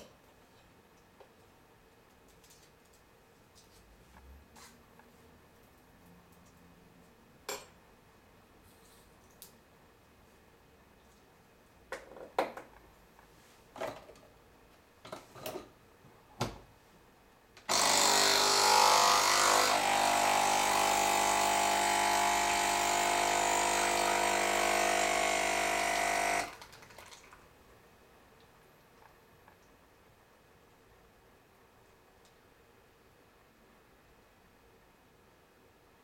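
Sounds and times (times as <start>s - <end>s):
capsule machine pump buzzing: 17.7s - 26.6s.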